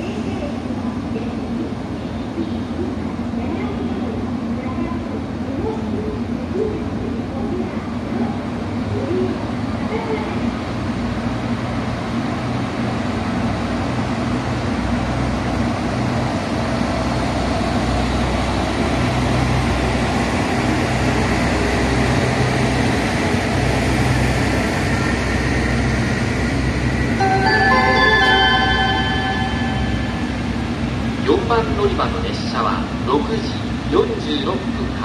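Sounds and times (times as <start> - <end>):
diesel train engine droning: 0.0 - 35.0
station chime: 27.2 - 31.0.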